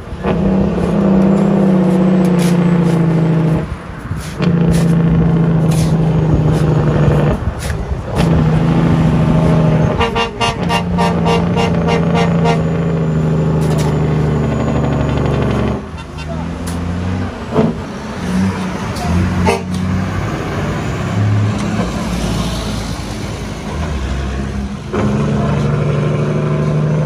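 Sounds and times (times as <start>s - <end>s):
dump truck diesel engine pulling: 0.0s - 27.0s.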